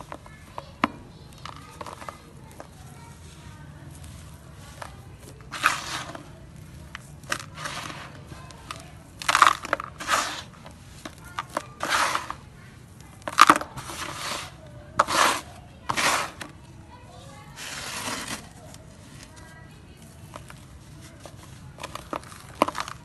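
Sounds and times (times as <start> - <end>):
sand sifting through fingers: 1.4 - 16.6, 17.4 - 23.0.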